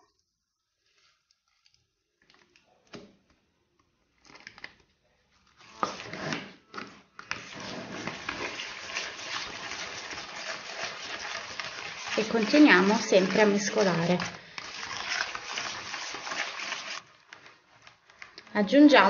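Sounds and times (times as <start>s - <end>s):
spoon stirring in a bowl: 7.3s - 17.4s.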